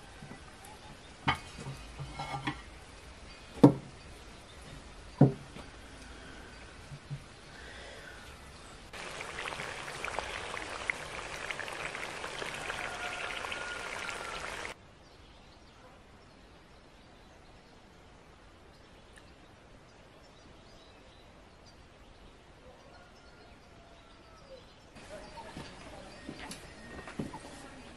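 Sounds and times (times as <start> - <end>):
faint outdoor background: 0.0 - 27.9
meat sizzling in a pot: 9.0 - 14.8.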